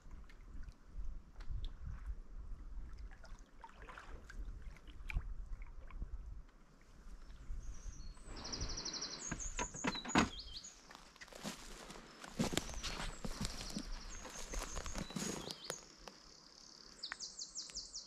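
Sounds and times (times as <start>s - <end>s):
paddle strokes and water splashing: 0.0s - 7.3s.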